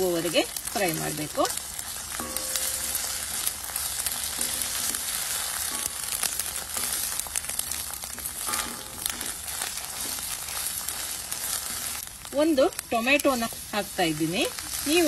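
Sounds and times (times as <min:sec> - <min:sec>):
onions sizzling in oil: 0:00.0 - 0:15.0
wooden spatula scraping a pan: 0:01.8 - 0:12.0.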